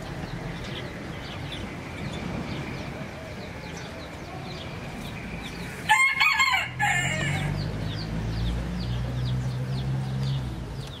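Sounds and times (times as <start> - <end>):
small birds chirping: 0.0 - 11.0
rooster crowing: 5.8 - 7.6.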